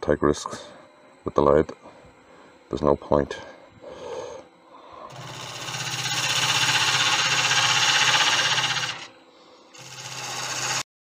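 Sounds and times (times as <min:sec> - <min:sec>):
fast pulsing of spinning blank: 0:05.1 - 0:09.1, 0:09.8 - 0:10.8
turning tool cutting wood on lathe: 0:05.1 - 0:09.1, 0:09.7 - 0:10.9.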